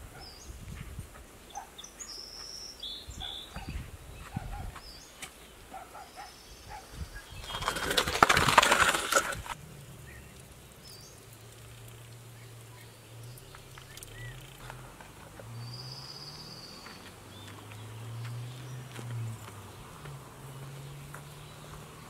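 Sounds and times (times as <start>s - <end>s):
bird chirps: 0.2s - 8.1s, 9.9s - 14.7s, 15.5s - 19.8s
metal tray scraping ash floor: 7.3s - 9.6s.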